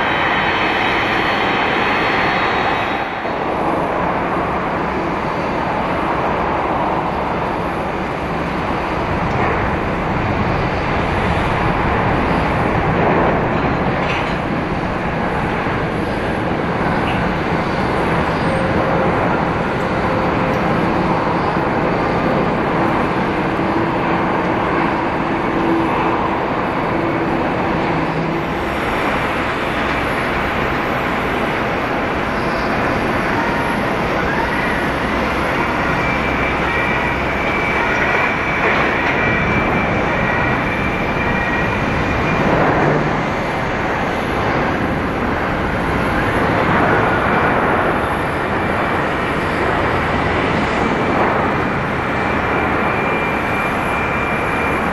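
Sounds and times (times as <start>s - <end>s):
jet engine rumble and hiss: 0.0s - 54.9s.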